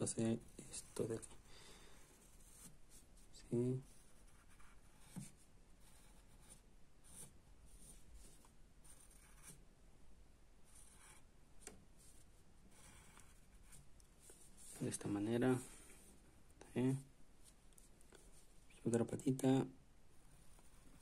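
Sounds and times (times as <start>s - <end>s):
pencil scratching on paper: 0.4s - 9.6s, 10.7s - 11.3s, 12.0s - 13.9s, 20.2s - 21.0s.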